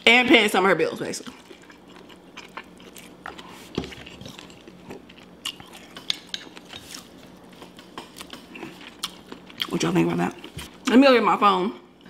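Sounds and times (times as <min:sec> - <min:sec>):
seafood chewing crunches: 0:01.3 - 0:09.8.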